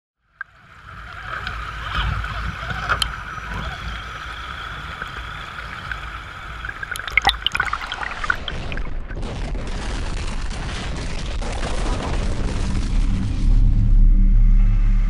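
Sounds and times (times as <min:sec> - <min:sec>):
creek water rushing over rocks: 0:00.5 - 0:09.2.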